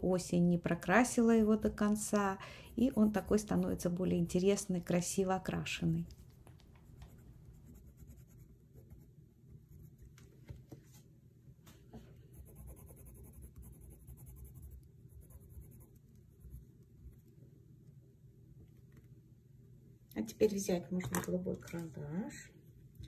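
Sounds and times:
pencil scratching on paper: 2.4s - 3.9s, 6.8s - 9.1s, 12.3s - 16.6s.

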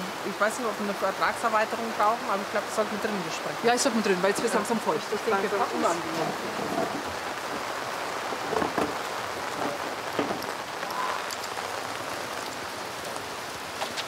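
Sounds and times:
rain pattering on paving: 0.0s - 14.0s
short knocks: 8.3s - 10.6s.

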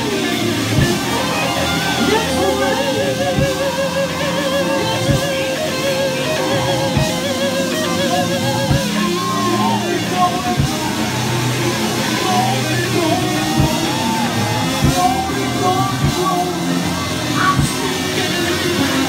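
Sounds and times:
gospel band music: 0.0s - 19.0s
person singing: 0.0s - 19.0s
drum thumps: 0.8s - 1.0s, 13.6s - 13.9s.

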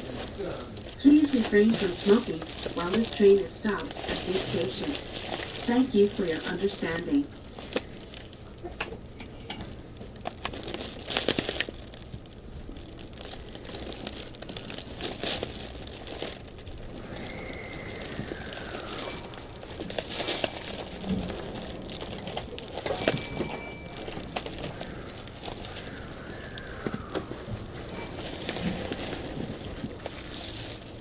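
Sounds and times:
close rustling: 0.0s - 8.7s, 9.6s - 31.0s
steady low hum: 0.0s - 31.0s
short ringing tone: 18.8s - 19.6s, 22.9s - 24.3s, 27.9s - 28.8s.

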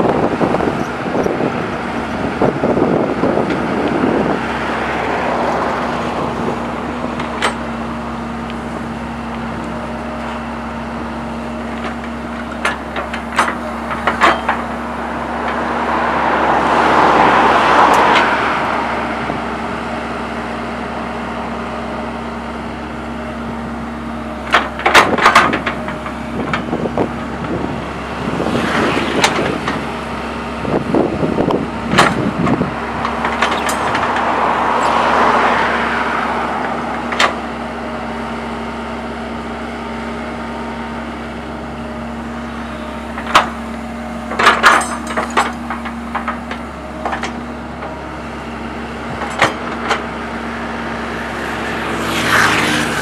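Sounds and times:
excavator diesel engine running: 0.0s - 53.0s
excavator bucket clanking: 5.9s - 8.6s, 11.1s - 15.7s, 24.4s - 27.8s, 28.5s - 30.0s, 30.7s - 35.4s, 42.6s - 50.4s.

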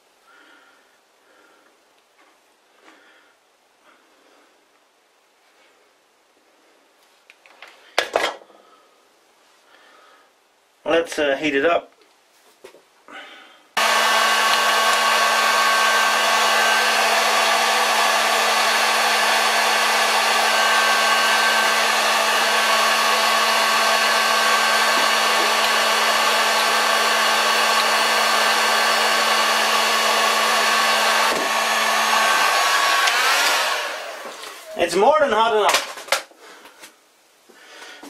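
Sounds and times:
hot air gun blowing: 13.8s - 34.8s.

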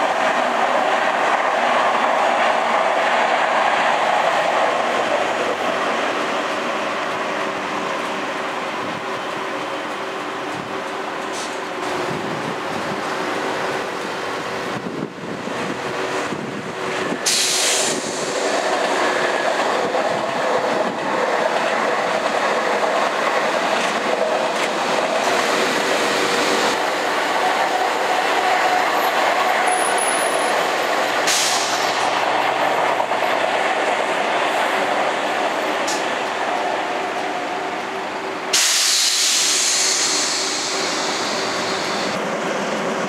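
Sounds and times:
electric trains rolling on rails: 0.0s - 43.0s.

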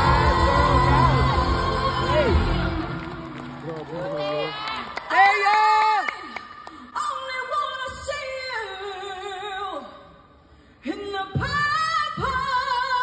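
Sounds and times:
woman singing pop ballad: 0.0s - 3.2s, 10.9s - 13.0s.

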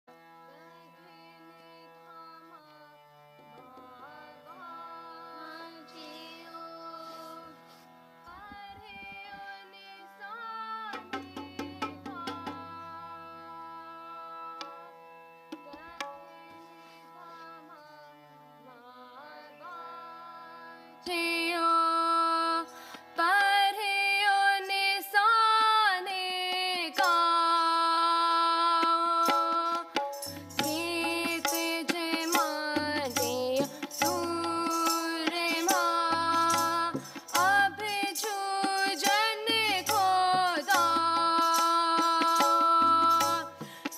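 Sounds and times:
harmonium playing chords: 0.1s - 11.2s, 11.8s - 43.9s
girl singing: 0.6s - 7.7s, 8.3s - 14.7s, 15.6s - 43.9s
tabla strokes: 10.8s - 12.9s, 28.7s - 43.9s.

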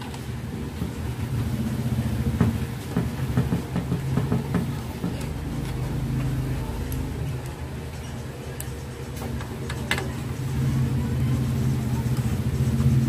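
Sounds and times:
steady low engine-like hum: 0.0s - 13.0s.

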